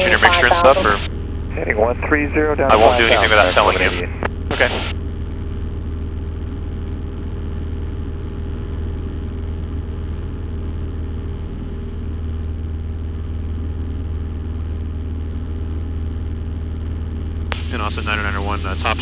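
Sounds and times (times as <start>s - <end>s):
airplane engine and propeller droning: 0.0s - 4.9s, 17.0s - 19.0s.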